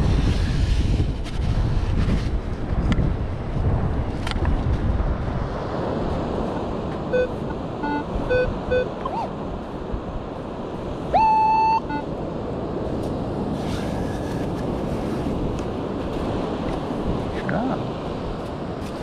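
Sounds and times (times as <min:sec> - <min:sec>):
wind: 0:00.0 - 0:19.0
metal detector beeps and tones: 0:07.1 - 0:09.3, 0:11.1 - 0:12.1
surf hiss: 0:09.4 - 0:19.0.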